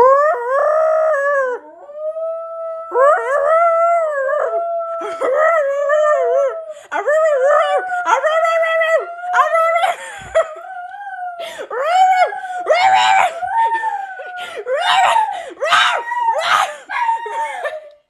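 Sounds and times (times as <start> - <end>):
man wailing in falsetto: 11.2 - 18.0.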